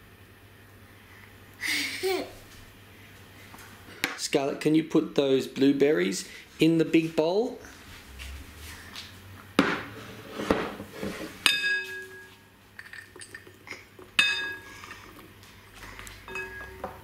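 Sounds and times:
ceramic jug clinking on glass bowl: 14.2s - 14.7s, 16.2s - 17.0s.

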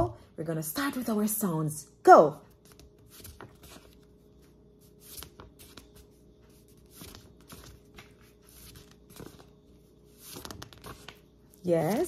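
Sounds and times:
faint steady hum: 0.0s - 12.0s
paper flashcards flipping: 2.6s - 4.1s, 4.8s - 11.3s.

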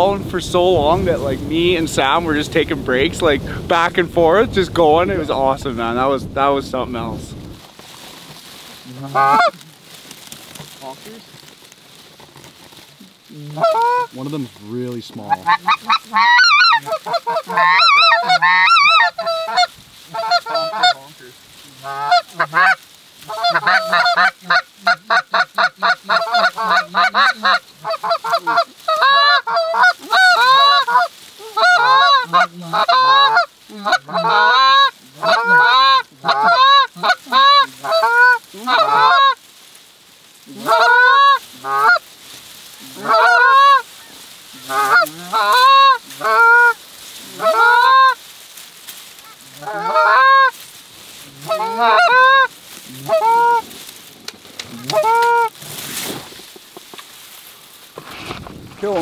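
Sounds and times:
goose calls honking and clucking: 8.8s - 9.7s, 13.3s - 39.4s, 40.4s - 42.1s, 42.8s - 48.3s, 49.1s - 53.8s, 54.6s - 56.0s.

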